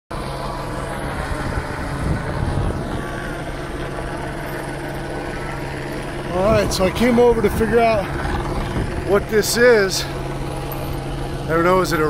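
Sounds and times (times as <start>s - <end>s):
helicopter hovering: 0.1s - 12.0s.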